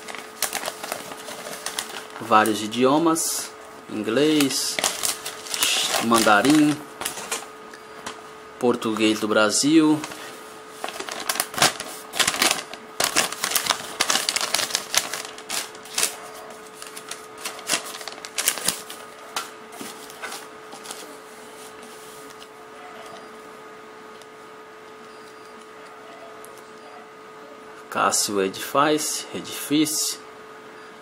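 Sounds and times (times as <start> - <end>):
paper and cardboard crinkling: 0.0 - 2.7, 4.2 - 8.2, 9.9 - 22.4
faint steady hum: 0.0 - 31.0.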